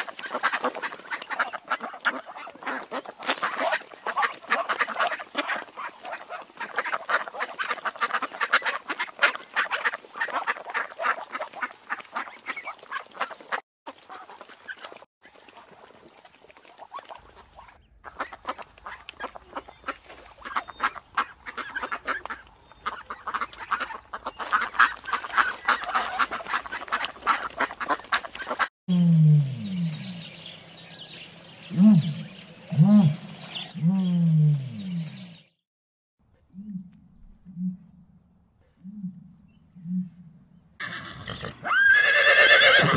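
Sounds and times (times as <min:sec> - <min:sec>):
ducks quacking: 0:00.0 - 0:15.9, 0:16.7 - 0:28.7.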